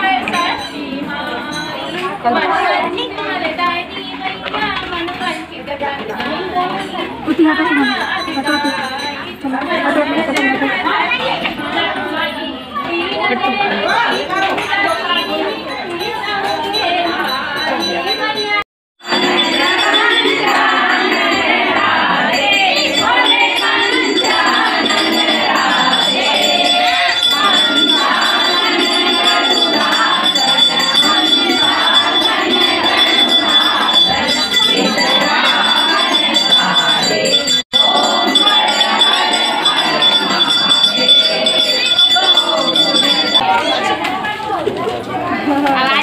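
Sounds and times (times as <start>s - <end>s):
women singing together: 0.0s - 46.0s
small hand bell ringing: 7.5s - 10.0s, 13.8s - 43.8s.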